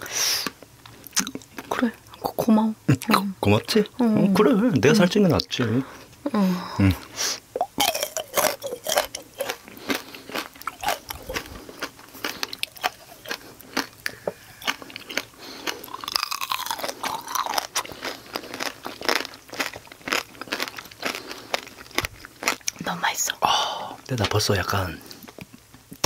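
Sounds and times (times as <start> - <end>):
chewing: 7.0 - 22.9
crunching candy coating: 7.6 - 23.0.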